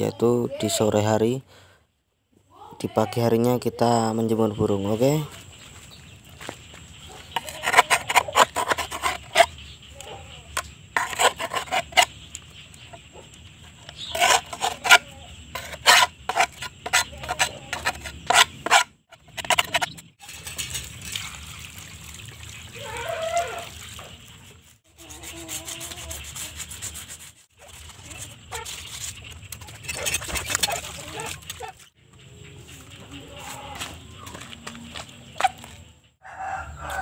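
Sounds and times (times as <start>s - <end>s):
wooden block scraping: 6.4s - 9.6s, 10.6s - 12.2s, 12.8s - 20.1s, 25.0s - 31.9s.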